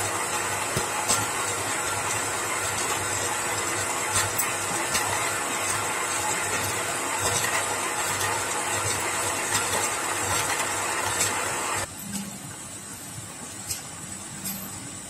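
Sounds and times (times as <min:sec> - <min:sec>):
tiller tines churning stony soil: 0:00.0 - 0:11.9.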